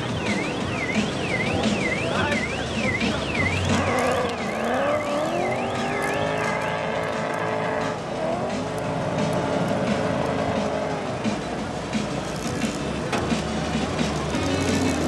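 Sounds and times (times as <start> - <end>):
car engine revving: 0.0 - 15.0
warbling alarm tone: 0.4 - 7.0.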